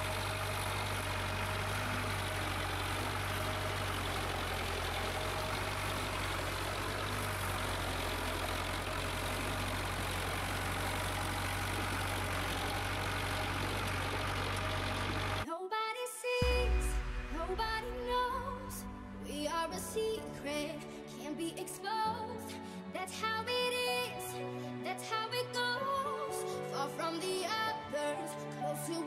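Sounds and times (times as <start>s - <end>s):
tractor diesel engine running: 0.0s - 15.4s.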